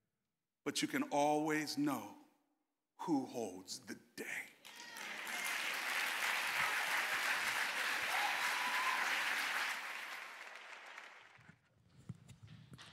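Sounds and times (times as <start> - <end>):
congregation clapping: 4.6 - 11.6.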